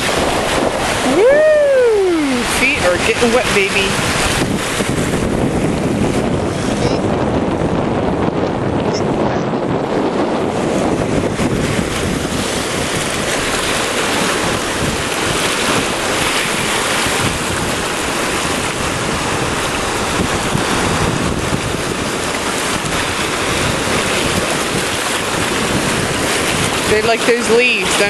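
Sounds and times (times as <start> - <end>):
surf breaking over rocks: 0.0 - 28.0
wind buffeting microphone: 0.0 - 28.0.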